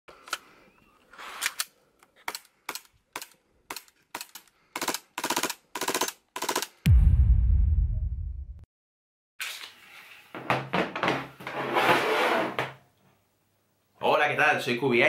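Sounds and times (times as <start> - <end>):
full-auto airsoft bursts: 2.7 - 6.8
deep low boom: 6.9 - 8.6.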